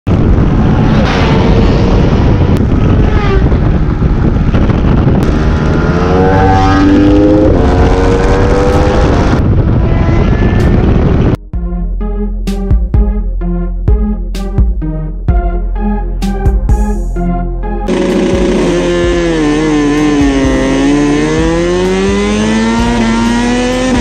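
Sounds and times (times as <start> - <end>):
motorcycle engine accelerating: 0.1 - 11.4, 17.9 - 24.0
wind rumble on microphone: 0.1 - 11.4.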